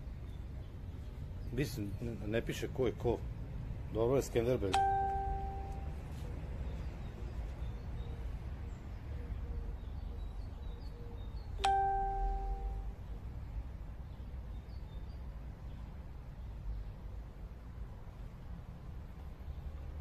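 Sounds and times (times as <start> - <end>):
chime ringing: 4.8 - 6.0, 11.6 - 12.9.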